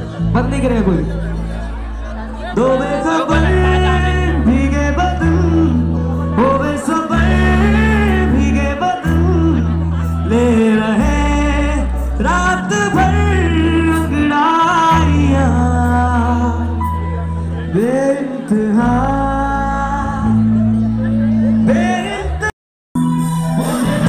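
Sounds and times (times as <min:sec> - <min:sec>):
sustained low bass chords: 0:00.0 - 0:24.0
man singing ornamented phrases: 0:02.4 - 0:16.8.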